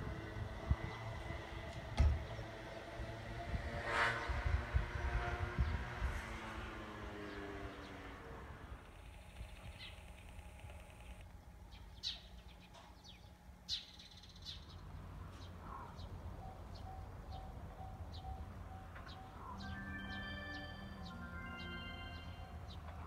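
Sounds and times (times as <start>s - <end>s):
small birds chirping: 8.9s - 23.0s.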